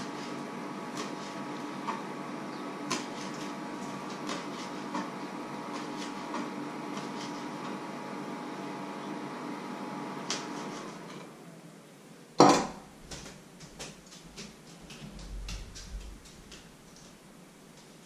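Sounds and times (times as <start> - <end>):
steady hum: 0.0 - 18.0
utensils clicking and tapping: 13.1 - 17.2.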